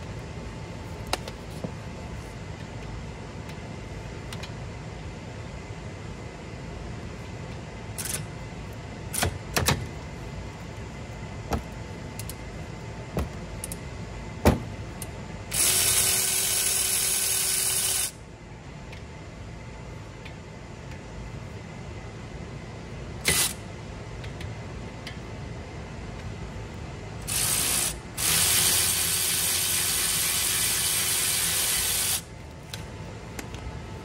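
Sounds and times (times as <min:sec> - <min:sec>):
power tool running: 0:15.5 - 0:18.2, 0:27.3 - 0:32.3.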